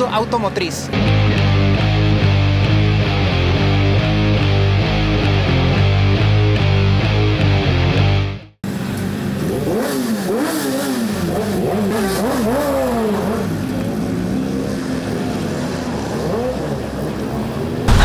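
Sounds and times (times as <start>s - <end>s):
vehicle engines revving: 8.7s - 18.0s.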